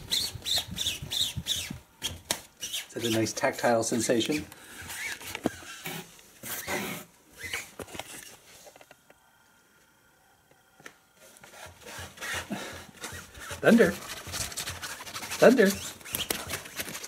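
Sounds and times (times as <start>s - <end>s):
cat scratching nylon fabric: 11.5s - 17.0s.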